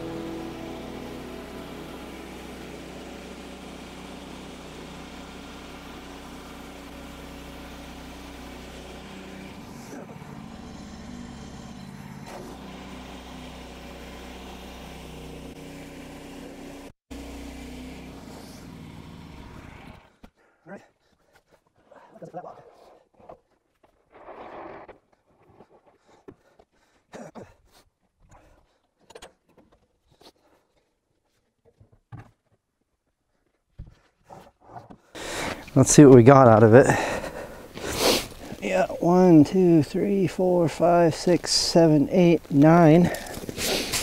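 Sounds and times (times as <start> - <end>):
small gasoline engine running: 0.0 - 20.2, 35.2 - 44.0.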